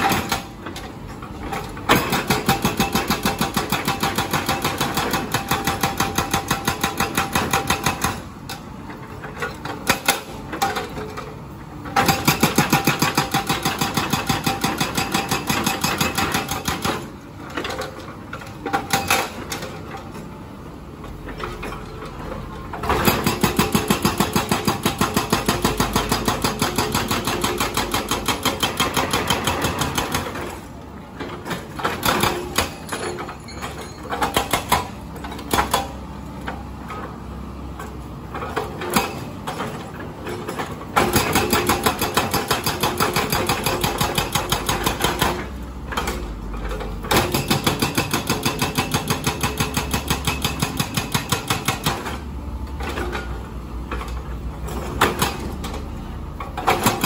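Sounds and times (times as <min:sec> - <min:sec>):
hydraulic breaker hammering concrete: 0:00.0 - 0:00.6, 0:01.9 - 0:08.4, 0:11.9 - 0:17.8, 0:18.6 - 0:19.7, 0:22.8 - 0:30.7, 0:31.4 - 0:36.0, 0:38.3 - 0:52.2, 0:54.7 - 0:55.8, 0:56.6 - 0:57.0.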